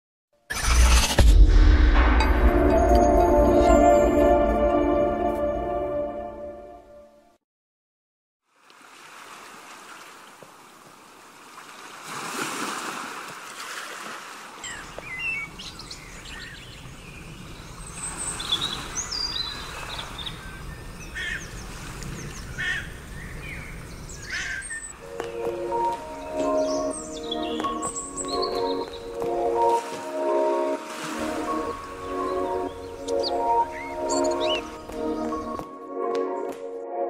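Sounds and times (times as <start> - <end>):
surf washing: 8.8 - 15.0, 28.9 - 35.4
birds chirping: 14.6 - 35.6.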